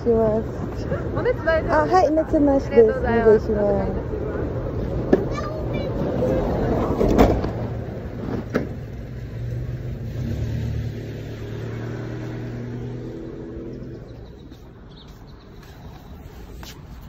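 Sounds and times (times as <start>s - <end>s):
minibus engine pulling away: 6.4s - 15.0s.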